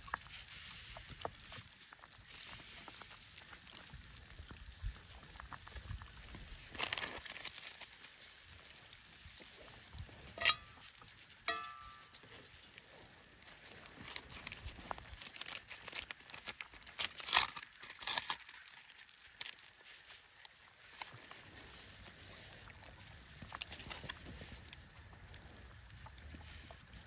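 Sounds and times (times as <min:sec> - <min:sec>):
rustling and crinkling: 0:00.0 - 0:27.0
metallic clink: 0:10.4 - 0:10.8, 0:11.5 - 0:12.2.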